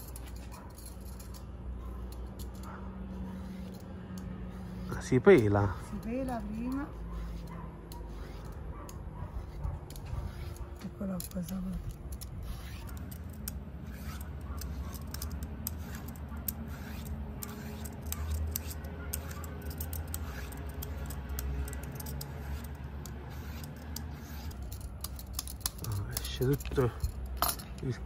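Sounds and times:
peeler scraping squash skin: 0:09.4 - 0:25.1.

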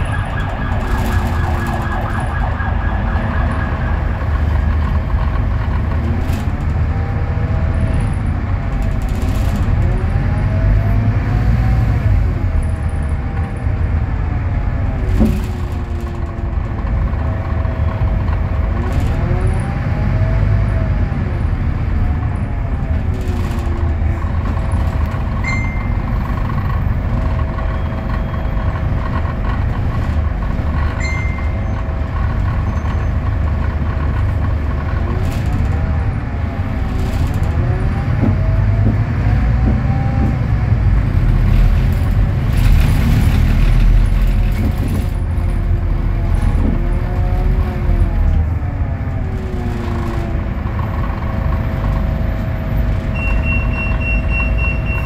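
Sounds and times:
bus diesel engine idling: 0:00.0 - 0:11.0, 0:12.1 - 0:19.2, 0:20.2 - 0:39.8, 0:40.5 - 0:55.0.

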